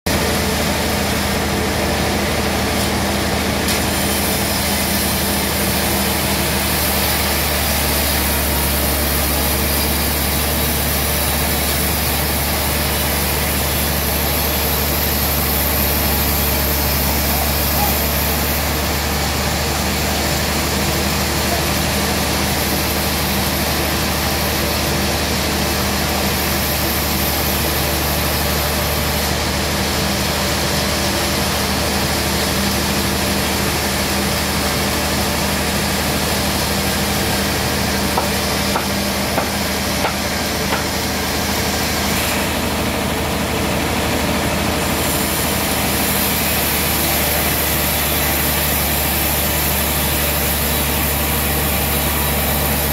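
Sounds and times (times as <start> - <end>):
band sawmill sawing log: 0.1 - 52.9.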